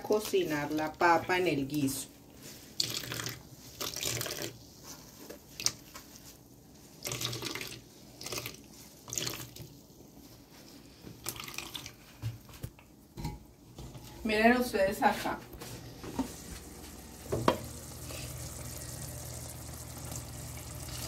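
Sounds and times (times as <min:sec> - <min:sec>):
coconut milk pouring and splashing: 0:02.7 - 0:04.6, 0:07.0 - 0:09.7, 0:11.2 - 0:12.0, 0:16.2 - 0:21.0.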